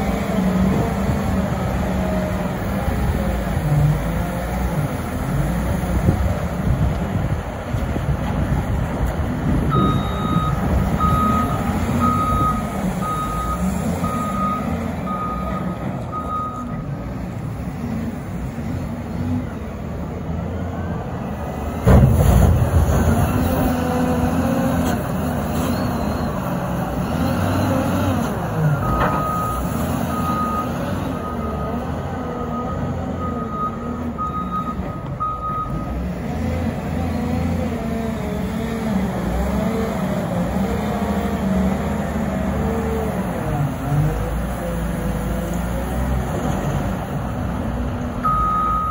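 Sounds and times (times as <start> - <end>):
diesel engine under load: 0.0 - 48.9
reversing alarm beeping: 9.7 - 16.8, 28.8 - 31.7, 32.5 - 35.9, 48.2 - 48.9.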